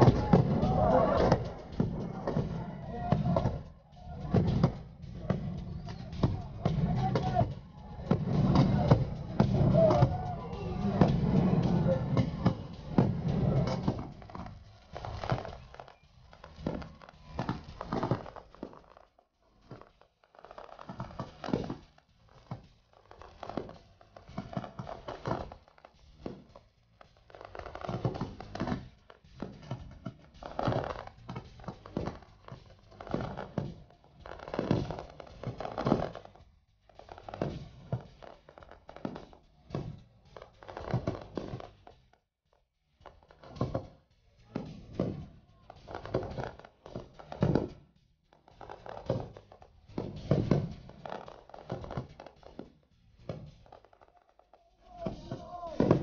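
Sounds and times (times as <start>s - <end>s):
fireworks bursting with sharp bangs: 20.4s - 22.0s, 37.0s - 41.6s.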